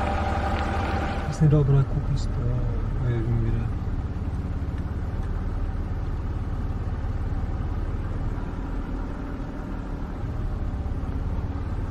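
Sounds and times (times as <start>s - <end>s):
vehicle engine idling: 0.0s - 11.9s.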